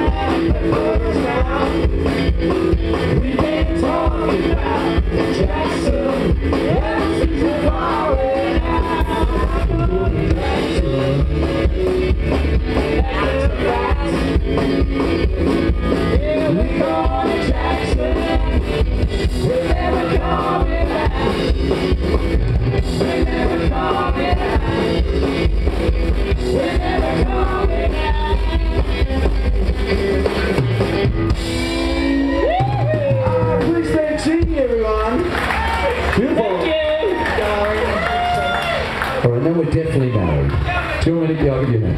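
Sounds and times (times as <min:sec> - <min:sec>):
double bass: 0:00.0 - 0:36.2
drum kit: 0:00.0 - 0:39.0
electric guitar: 0:00.0 - 0:39.2
woman singing: 0:12.8 - 0:14.4, 0:19.4 - 0:21.4, 0:26.4 - 0:29.1.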